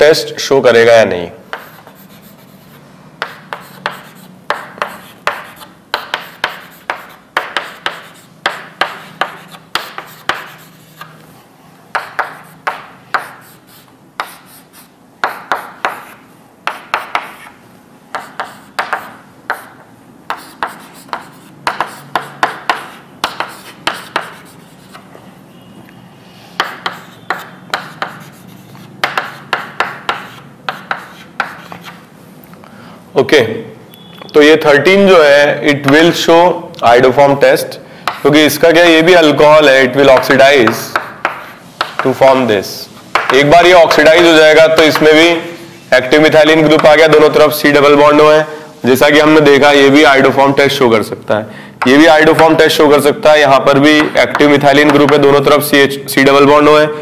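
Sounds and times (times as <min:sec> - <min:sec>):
pen tapping and scratching: 0:01.5 - 0:11.2, 0:11.9 - 0:25.1, 0:26.6 - 0:32.1, 0:40.2 - 0:42.1, 0:53.9 - 0:55.2.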